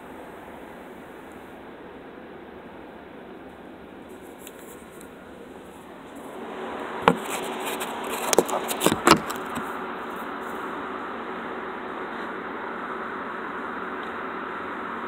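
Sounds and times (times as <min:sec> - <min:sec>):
phone handling clicks and knocks: 0:07.1 - 0:07.5, 0:08.2 - 0:09.6.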